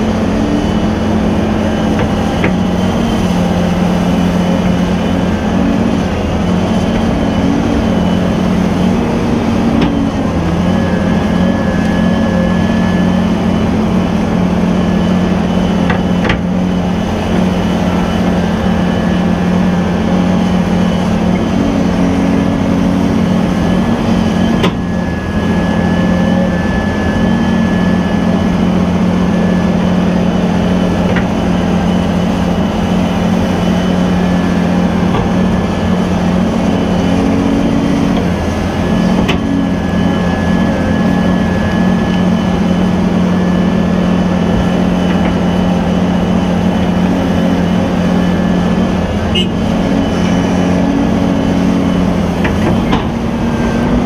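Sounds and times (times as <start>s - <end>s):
excavator engine and hydraulics: 0.0s - 54.0s
faint high whine: 0.0s - 54.0s.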